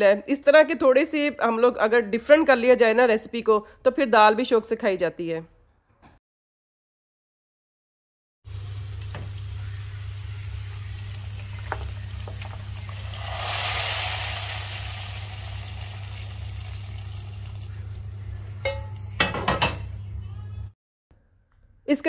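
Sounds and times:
hot oil sizzling: 8.5s - 19.0s
low steady hum: 14.8s - 20.7s
cookware clattering: 18.6s - 19.9s.

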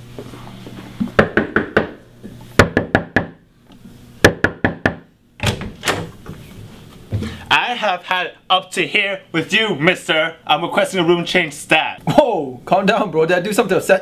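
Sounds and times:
knuckles knocking on a door: 4.3s - 5.1s.

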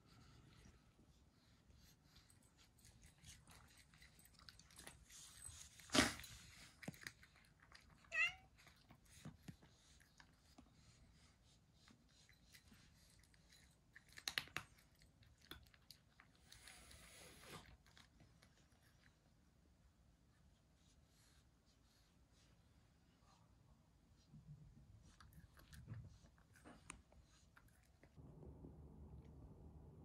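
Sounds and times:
cat crunching kibble: 5.7s - 10.2s, 12.7s - 16.7s
cat meowing: 8.0s - 8.5s.

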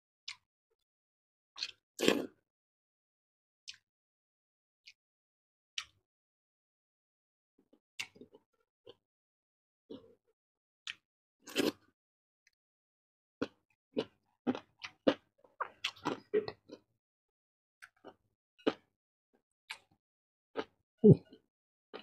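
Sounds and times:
person chewing and lip smacking: 13.4s - 16.8s, 17.8s - 18.9s, 19.7s - 20.0s, 20.6s - 22.0s.

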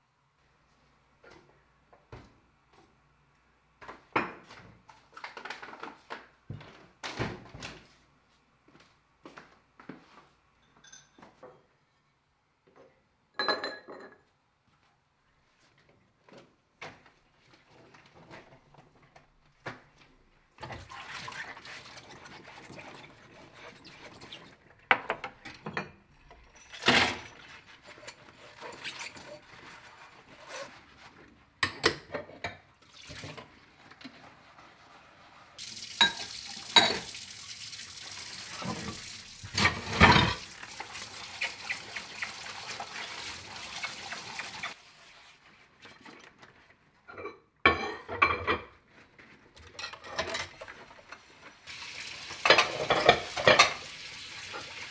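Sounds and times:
dishes clinking and clattering: 10.6s - 11.7s, 13.4s - 14.3s, 24.8s - 29.4s, 36.0s - 37.2s, 38.6s - 40.9s, 47.1s - 48.7s, 49.6s - 51.3s, 52.3s - 54.9s
tap water running into sink: 35.6s - 44.8s, 51.7s - 54.9s.

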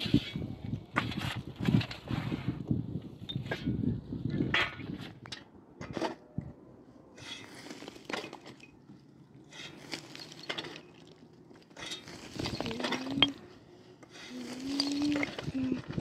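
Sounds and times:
pick digging stony soil: 7.1s - 16.0s.

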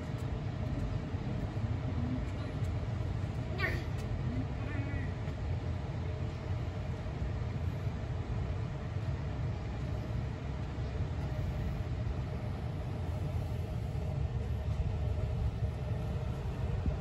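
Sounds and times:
faint constant hum: 0.0s - 17.0s
low background rumble: 0.0s - 17.0s.

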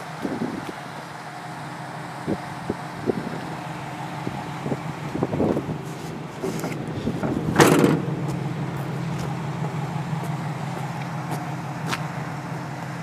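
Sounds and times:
tailgate slamming shut: 6.6s - 8.4s.

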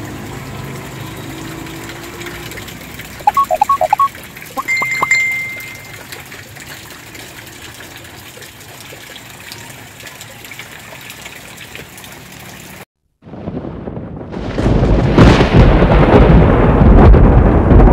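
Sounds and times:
light rain on water and leaves: 0.0s - 12.9s
thunder-like rumbling effect: 13.2s - 17.9s.

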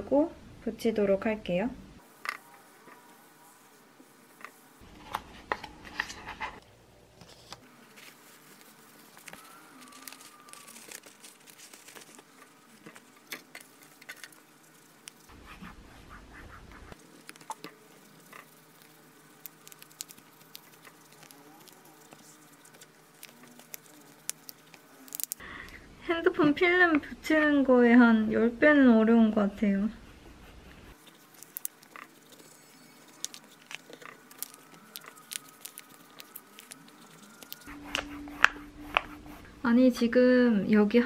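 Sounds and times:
plastic film crinkling: 7.3s - 15.5s, 17.0s - 25.4s, 30.9s - 38.5s.

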